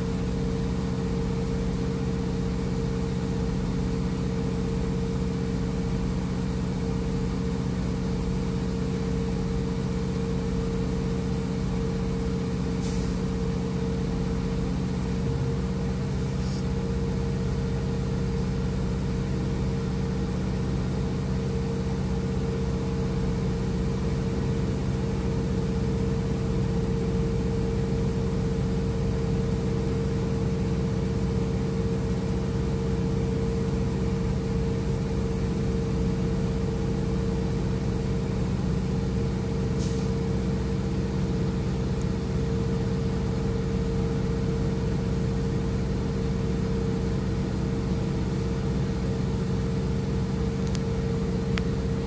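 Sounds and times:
diesel truck engine idling: 0:00.0 - 0:52.0
faint click: 0:50.6 - 0:50.9.

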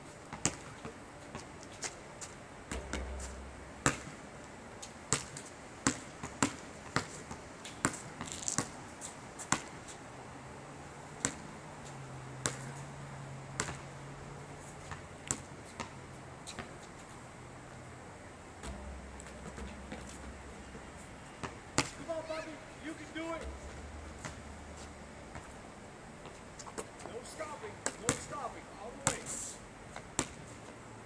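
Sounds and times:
basketball bouncing on asphalt: 0:00.2 - 0:01.6, 0:02.2 - 0:09.8, 0:11.2 - 0:11.6, 0:12.4 - 0:12.8, 0:13.5 - 0:14.0, 0:14.8 - 0:16.8, 0:18.6 - 0:30.5.

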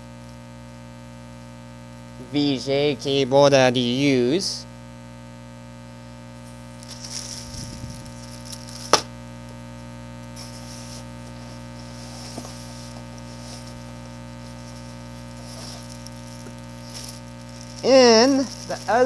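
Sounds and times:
steady electrical hum: 0:00.0 - 0:19.0
plastic wrapping crinkling: 0:06.5 - 0:09.1, 0:10.4 - 0:19.0.

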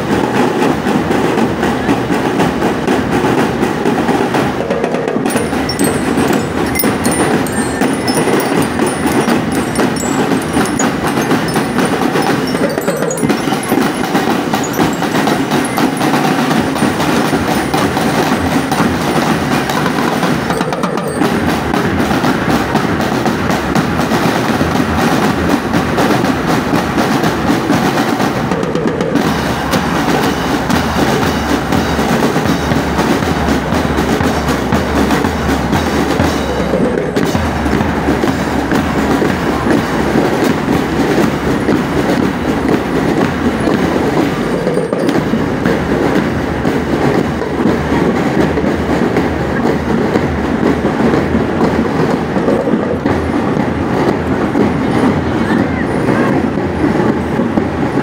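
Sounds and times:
marching drum band: 0:00.0 - 0:58.0
bell-like tune: 0:05.3 - 0:23.0, 0:30.3 - 0:42.2, 0:42.9 - 0:46.6.

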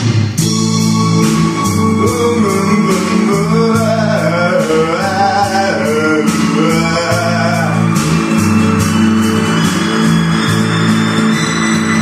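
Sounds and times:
backing track with guitar and drums: 0:00.0 - 0:12.0
man singing karaoke: 0:01.0 - 0:08.7.

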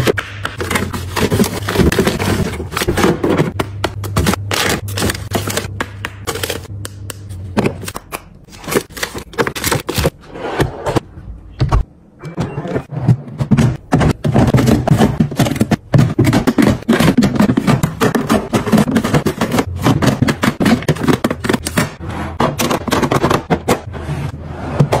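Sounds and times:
plastic containers clicking: 0:13.5 - 0:21.9.

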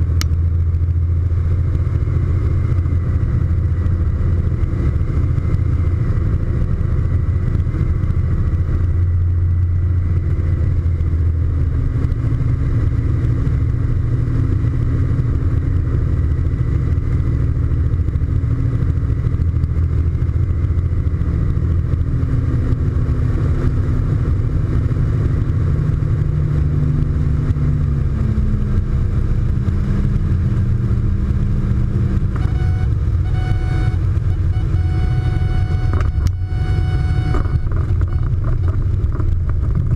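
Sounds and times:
propeller plane engine: 0:00.0 - 0:39.9
steady high tone: 0:32.4 - 0:38.4.

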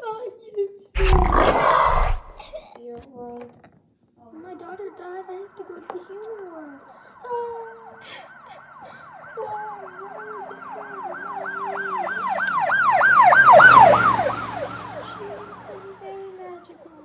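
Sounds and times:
siren fast yelp: 0:05.1 - 0:16.0.

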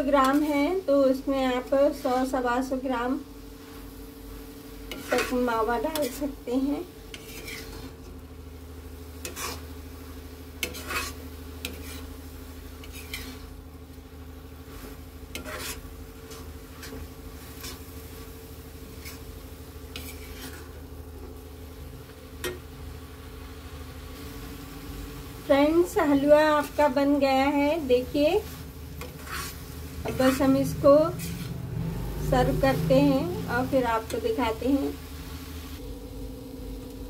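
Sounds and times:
ladle scraping pan: 0:04.9 - 0:06.4, 0:07.0 - 0:08.1, 0:09.2 - 0:09.8, 0:10.6 - 0:13.6, 0:14.6 - 0:20.9, 0:26.4 - 0:31.7
low hum: 0:12.1 - 0:37.0.

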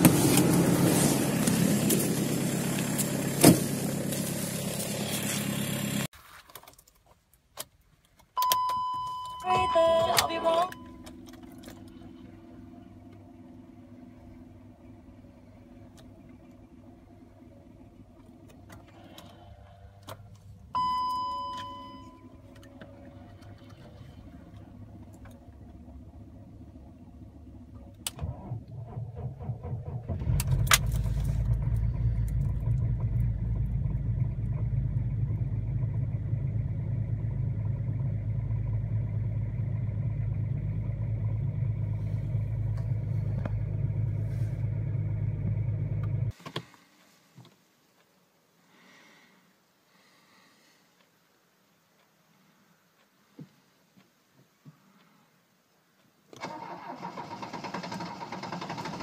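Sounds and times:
diesel engine idling: 0:00.0 - 0:06.1, 0:20.8 - 0:46.4
dashboard chime: 0:08.4 - 0:11.0, 0:20.8 - 0:22.2
starter motor cranking: 0:56.4 - 0:59.0.

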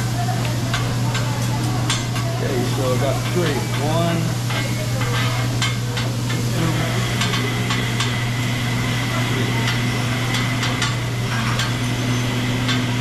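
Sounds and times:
food sizzling on griddle: 0:00.0 - 0:13.0
metal spatulas tapping and scraping: 0:03.2 - 0:06.4.

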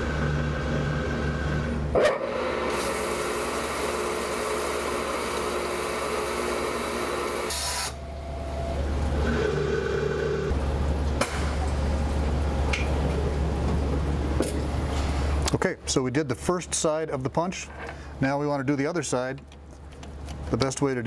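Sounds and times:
grinder grinding: 0:00.0 - 0:08.0
low machine hum: 0:00.0 - 0:20.6
coolant spraying: 0:02.7 - 0:08.0.

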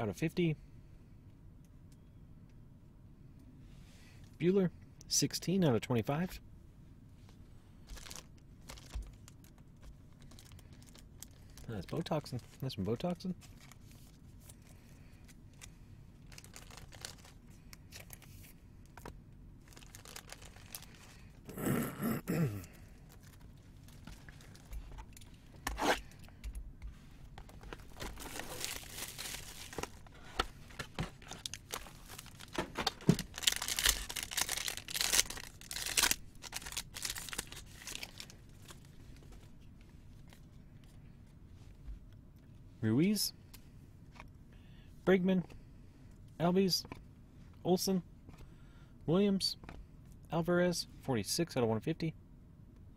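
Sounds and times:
plastic wrapping crinkling: 0:07.9 - 0:12.7, 0:16.2 - 0:18.3, 0:19.6 - 0:21.2, 0:27.5 - 0:38.9
plastic ripping: 0:19.7 - 0:21.0, 0:31.2 - 0:38.8.

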